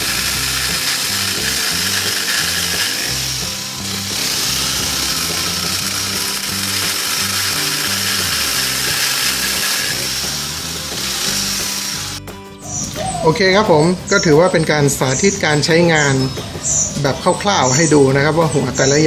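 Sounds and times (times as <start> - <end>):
saw chain cutting branch: 0.0 - 12.2
pole saw engine at high revs: 0.0 - 12.3
music with stepping bass line: 0.0 - 14.5.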